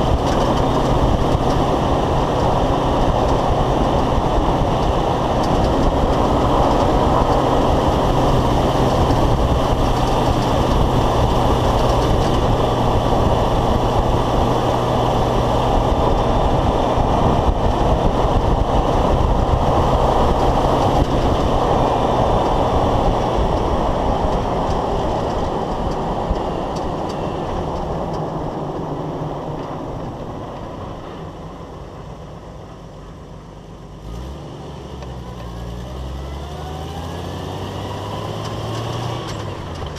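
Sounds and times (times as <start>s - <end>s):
drivetrain running: 0.0s - 30.9s
wind: 0.0s - 39.9s.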